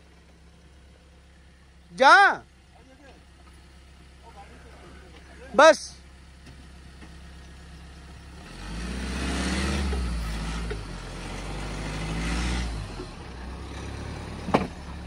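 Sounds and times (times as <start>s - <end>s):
diesel engine idling and revving: 0.0s - 15.0s
tyres on gravel: 2.5s - 8.9s.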